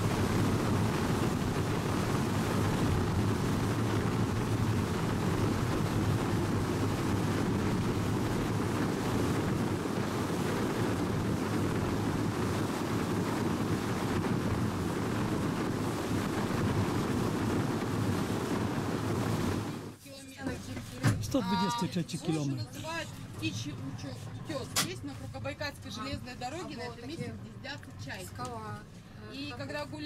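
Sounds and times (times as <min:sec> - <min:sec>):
water rushing past hull: 0:00.0 - 0:20.0
wind buffeting microphone: 0:00.0 - 0:20.0
outboard engine: 0:00.0 - 0:30.0.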